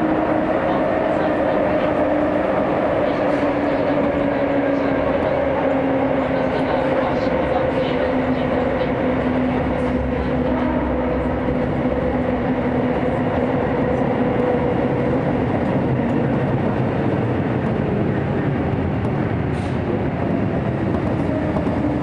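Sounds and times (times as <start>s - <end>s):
train wheels rumbling in tunnel: 0.0s - 22.0s.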